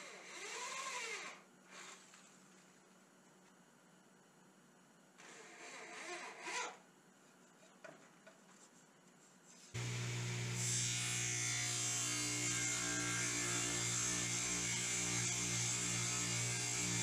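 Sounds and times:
electric drill boring into wood: 0:00.0 - 0:02.0, 0:09.8 - 0:17.0
table saw cutting board: 0:09.8 - 0:17.0.

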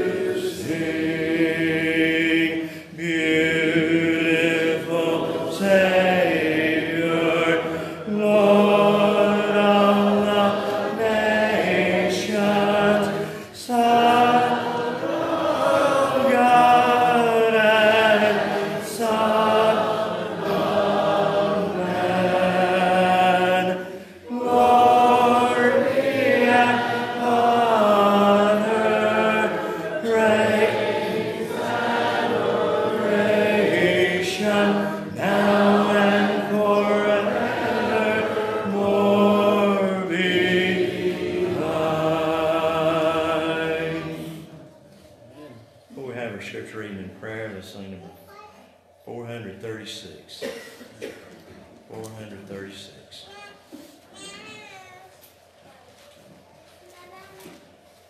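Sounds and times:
congregation singing a hymn: 0:00.0 - 0:45.1.

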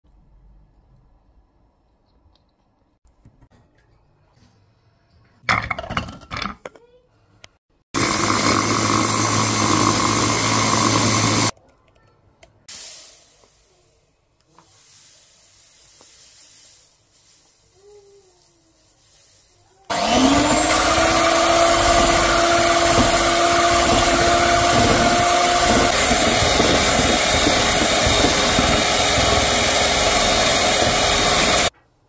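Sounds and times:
electric food chopper running: 0:08.0 - 0:11.5, 0:19.9 - 0:31.7.

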